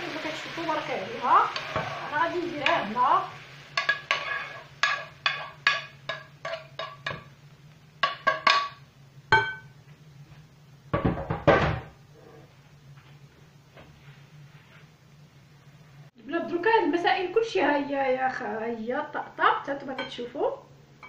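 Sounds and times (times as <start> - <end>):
metal utensil knocking frying pan: 3.8 - 7.3, 8.0 - 9.7.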